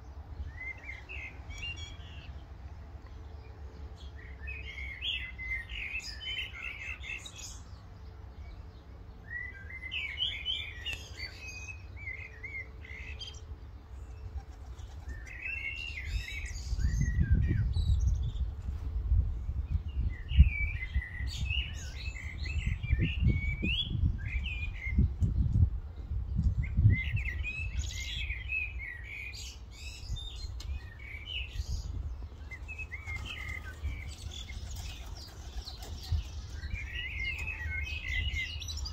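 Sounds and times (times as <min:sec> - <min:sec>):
songbird chirping: 0:00.0 - 0:18.6, 0:19.5 - 0:38.9
wind rumble on microphone: 0:14.2 - 0:29.0, 0:29.7 - 0:38.9.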